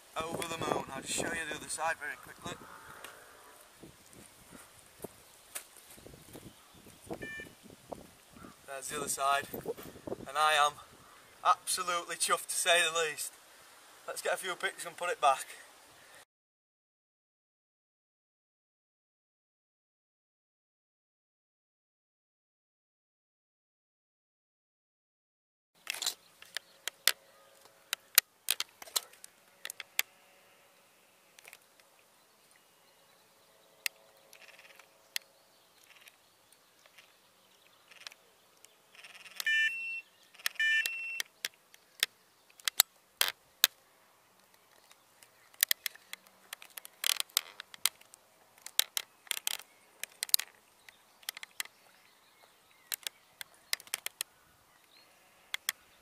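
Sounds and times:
bite alarm beeps: 7.2s - 7.6s, 39.4s - 41.3s
sharp clicks and taps: 52.9s - 54.3s.

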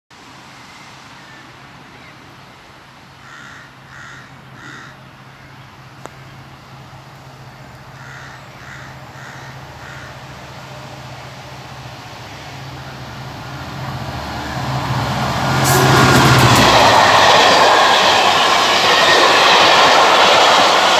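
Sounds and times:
crow cawing: 3.2s - 5.5s, 8.0s - 10.3s.

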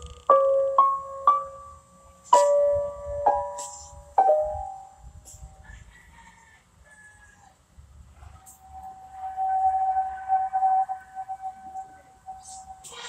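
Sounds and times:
piano notes ringing: 0.0s - 5.5s, 8.5s - 13.0s.

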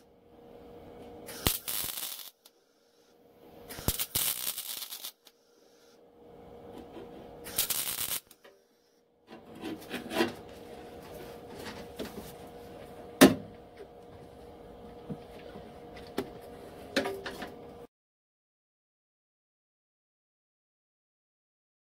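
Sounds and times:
faint steady hum: 0.0s - 17.9s
welding arc crackle: 1.3s - 2.5s, 3.7s - 5.3s, 7.4s - 8.4s.

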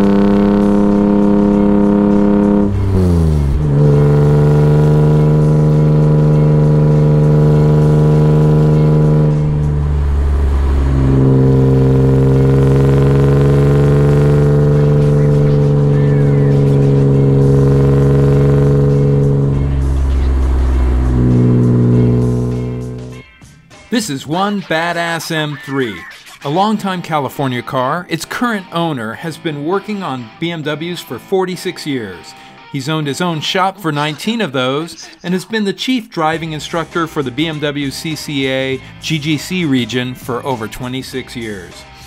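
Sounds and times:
car engine pulling: 0.0s - 23.2s.

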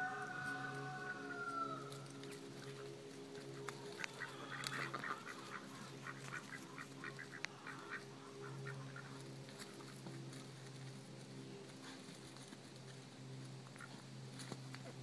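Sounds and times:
low steady hum: 0.0s - 15.0s
ducks quacking: 2.3s - 10.3s, 13.6s - 14.1s.

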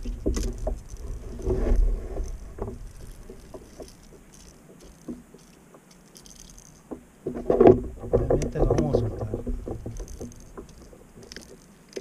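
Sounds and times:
rustling and knocking: 0.0s - 12.0s
light clicks and taps: 2.2s - 12.0s.

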